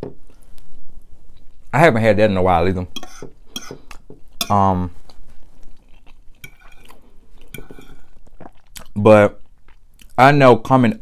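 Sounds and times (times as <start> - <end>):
fork scraping ceramic plate: 3.0 - 4.6, 6.4 - 8.1.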